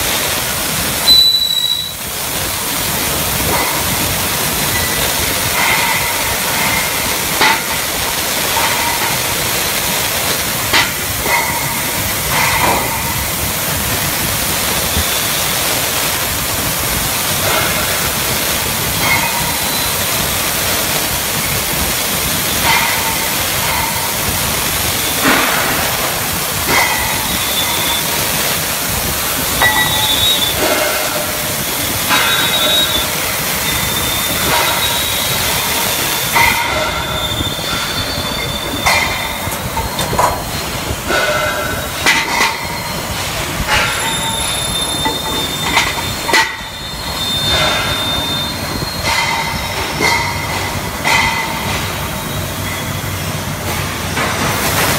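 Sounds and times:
machine hissing: 0.0s - 54.9s
high metallic squeals: 1.0s - 2.1s, 19.2s - 20.7s, 27.0s - 28.4s, 29.4s - 53.2s.

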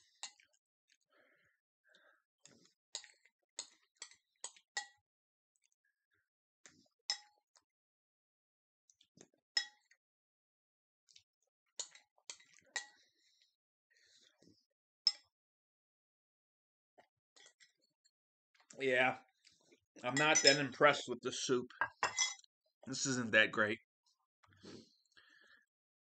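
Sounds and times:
spoon clinking on ceramic bowl: 20.1s - 20.7s, 21.8s - 22.4s.

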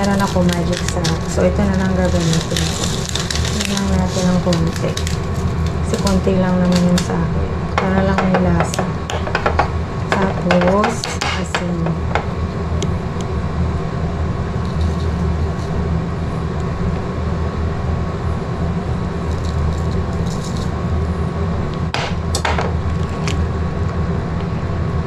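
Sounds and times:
gas burner rumbling: 0.0s - 25.0s
ladle knocking on pot: 7.8s - 12.3s.

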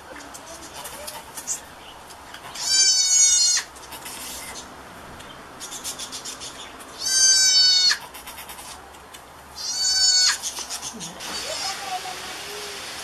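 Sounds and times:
goat kid bleating: 2.5s - 4.5s, 7.0s - 8.1s, 9.6s - 12.1s.

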